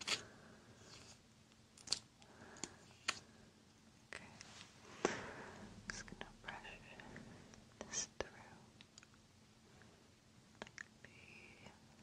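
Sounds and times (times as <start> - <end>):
soft rustling: 4.2 - 6.2.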